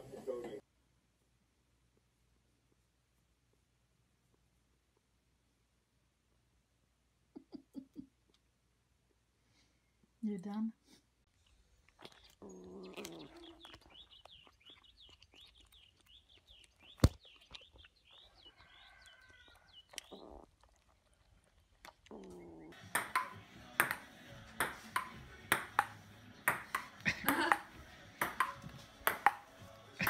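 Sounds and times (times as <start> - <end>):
faint high chirps: 11.4 - 20.5
ping-pong ball bouncing: 22.8 - 29.5.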